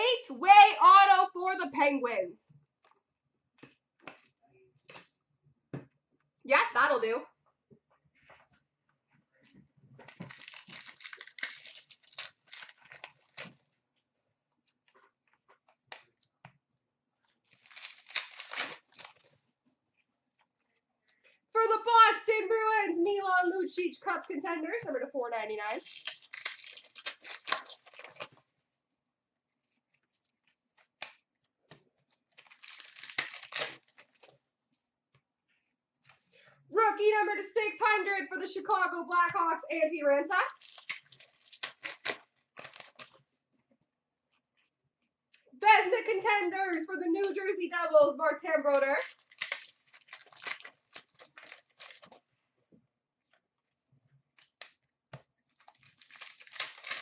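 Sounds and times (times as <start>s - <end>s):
wrapper crinkling and tearing: 10.0s - 13.7s, 17.4s - 19.4s, 25.5s - 28.5s, 32.1s - 34.4s, 40.4s - 43.3s, 48.7s - 52.3s, 55.5s - 57.0s.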